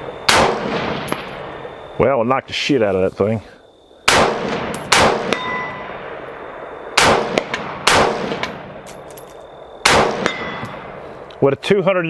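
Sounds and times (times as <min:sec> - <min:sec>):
rifle shots: 0:00.0 - 0:01.7, 0:04.1 - 0:09.1, 0:09.8 - 0:11.0
bullet clanging on steel plate: 0:04.7 - 0:05.8, 0:08.4 - 0:09.5, 0:10.2 - 0:10.8.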